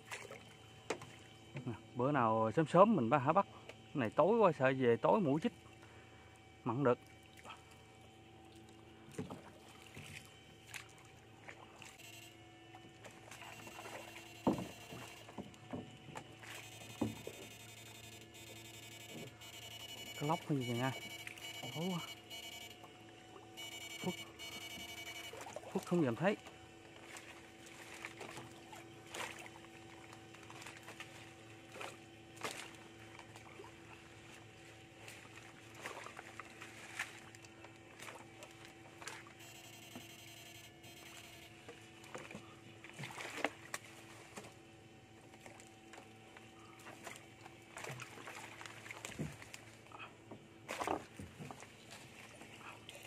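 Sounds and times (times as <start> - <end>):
faint steady hum: 0.0 - 53.0
water sloshing and splashing: 0.0 - 53.0
net sloshing through water: 27.0 - 37.3, 42.2 - 44.6, 46.8 - 49.8.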